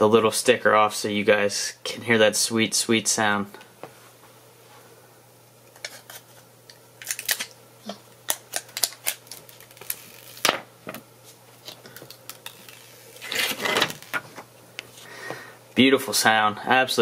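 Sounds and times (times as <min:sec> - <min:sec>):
plastic film peeling crackles: 0:07.0 - 0:07.6, 0:08.2 - 0:10.5, 0:11.6 - 0:14.4.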